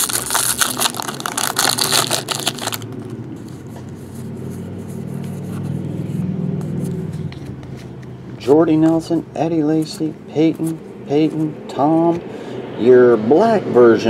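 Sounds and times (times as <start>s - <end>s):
foil wrapper crinkling: 0.0s - 3.1s
low steady rumble: 0.0s - 13.4s.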